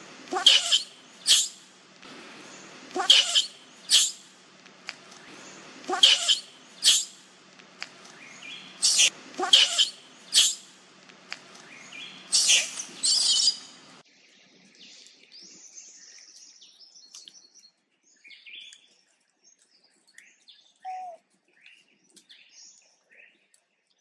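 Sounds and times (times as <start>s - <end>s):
monkey shrill cries: 0.3s - 1.5s, 3.0s - 4.1s, 5.9s - 7.1s, 8.8s - 10.6s
faint bird chirps: 3.0s - 4.2s, 8.2s - 10.7s, 14.4s - 23.8s.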